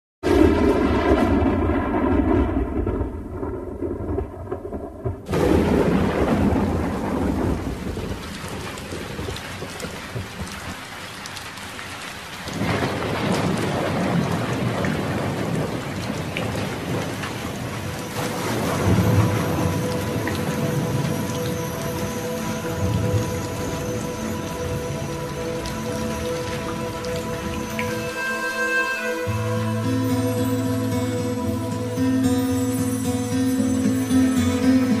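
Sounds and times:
thunder clap rumbling: 0:00.2 - 0:10.8, 0:12.5 - 0:27.8
heavy rain: 0:00.2 - 0:35.0.

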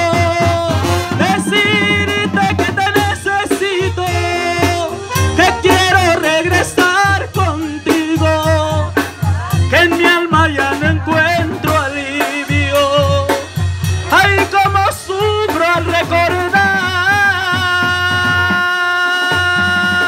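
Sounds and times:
brass band playing: 0:00.0 - 0:20.0.

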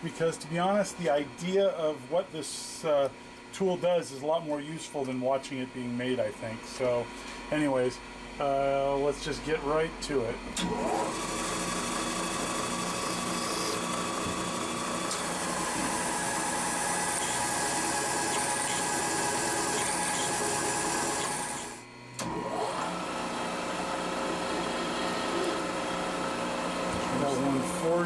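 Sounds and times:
milling machine drilling metal: 0:10.6 - 0:21.8.

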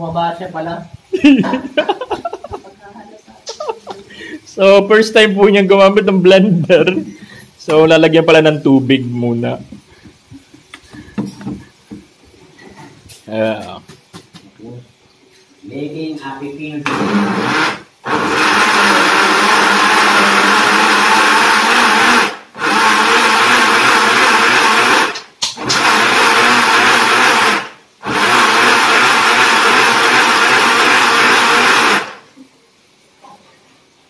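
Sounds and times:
bottle blender running: 0:16.8 - 0:32.2.

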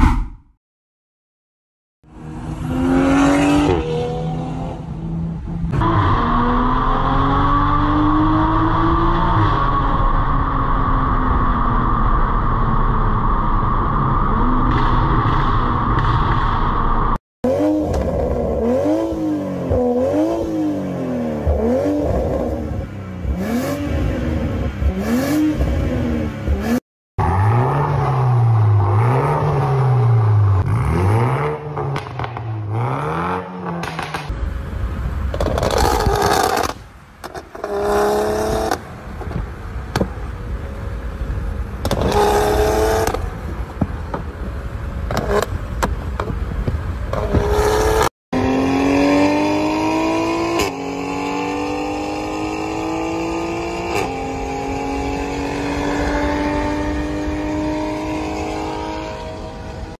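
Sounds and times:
car engine revving: 0:47.1 - 0:59.9.

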